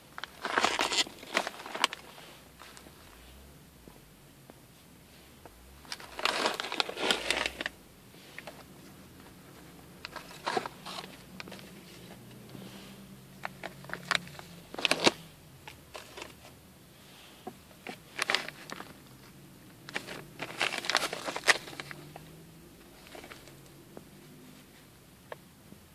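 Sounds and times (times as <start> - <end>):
plastic packets crinkling: 0.2 - 2.9, 5.8 - 7.8, 8.4 - 12.3, 13.4 - 15.2, 17.8 - 22.2, 22.8 - 23.6.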